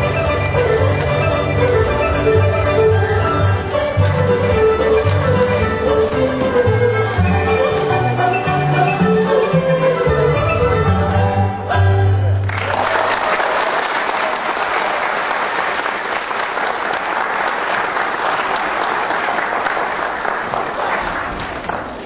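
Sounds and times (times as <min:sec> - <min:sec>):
dance music: 0:00.0 - 0:12.4
audience applauding: 0:12.4 - 0:22.0.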